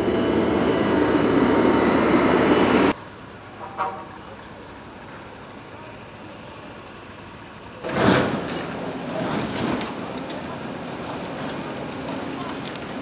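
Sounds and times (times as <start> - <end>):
heavy machinery running: 0.0 - 3.0.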